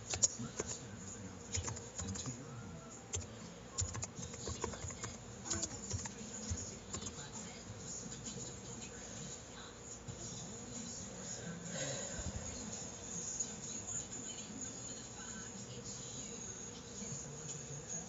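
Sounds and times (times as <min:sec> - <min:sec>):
keyboard typing: 0:00.0 - 0:00.8, 0:01.5 - 0:02.4, 0:03.1 - 0:07.2
faint steady hum: 0:00.0 - 0:18.0.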